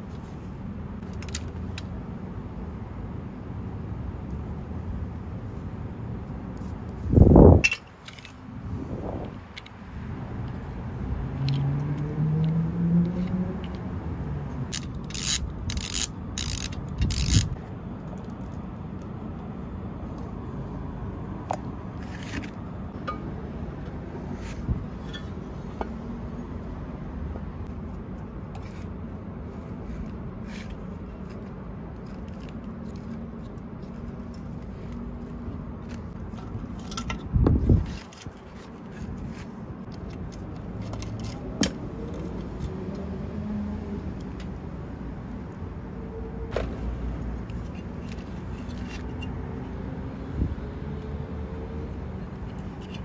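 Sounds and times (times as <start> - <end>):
metal parts clinking and scraping: 7.6 - 8.4, 14.7 - 19.1, 35.8 - 39.5, 47.5 - 49.4.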